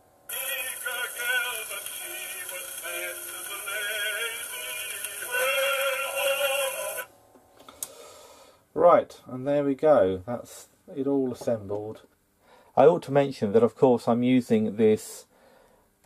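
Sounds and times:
record surface hiss: 0.0s - 16.0s
singer with vibrato on gramophone: 0.3s - 7.1s.

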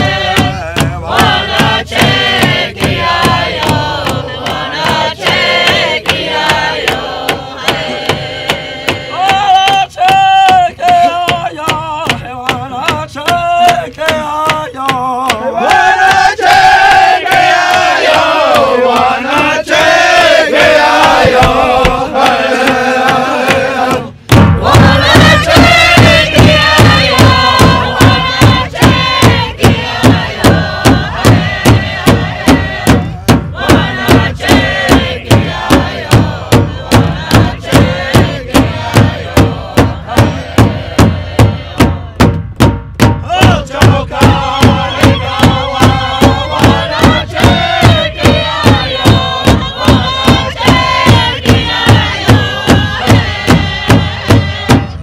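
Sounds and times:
group of voices chanting: 0.0s - 12.2s, 15.2s - 42.3s, 43.2s - 55.0s
steady drum beat: 0.0s - 55.0s.

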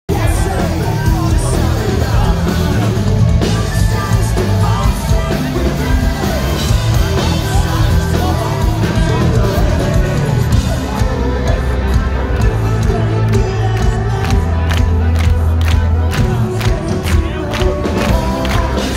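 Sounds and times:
person singing into microphone: 0.1s - 15.4s, 16.0s - 18.9s
live pop punk band: 0.1s - 18.9s.

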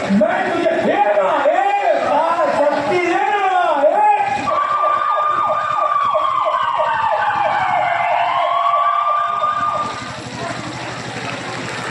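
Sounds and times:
electronic siren wailing: 4.1s - 10.1s
siren chirping warble: 4.4s - 10.1s.

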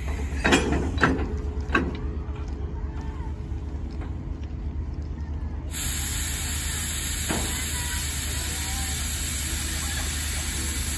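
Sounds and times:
loud hiss of escaping air: 5.7s - 10.9s.

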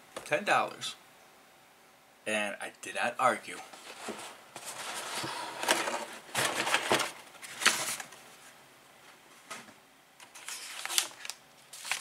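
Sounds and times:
cardboard lid scraping and rustling: 3.7s - 8.0s.

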